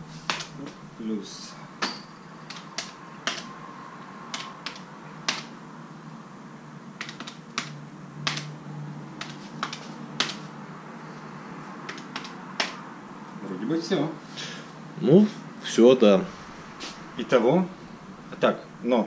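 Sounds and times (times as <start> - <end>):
calculator buttons clicking: 2.5 - 3.5, 4.3 - 5.5, 7.0 - 8.5, 9.2 - 10.5, 11.9 - 12.8.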